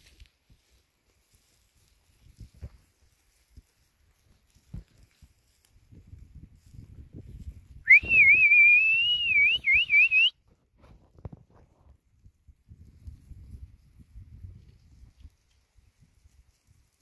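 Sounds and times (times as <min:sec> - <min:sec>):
rustling and footfalls in grass: 0:00.0 - 0:07.8, 0:10.8 - 0:17.0
person whistling: 0:07.9 - 0:10.3.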